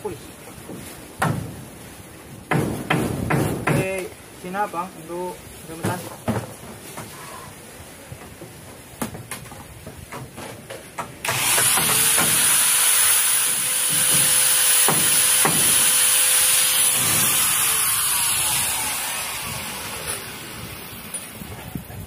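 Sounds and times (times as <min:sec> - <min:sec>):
angle grinder whining: 0:11.3 - 0:21.2.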